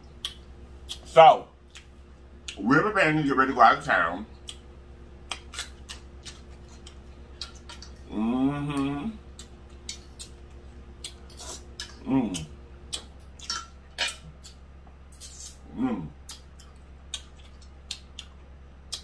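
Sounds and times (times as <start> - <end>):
person humming mmm: 8.0 - 9.4, 11.4 - 13.0, 15.2 - 16.4
mouth clicks from chewing: 16.2 - 19.0.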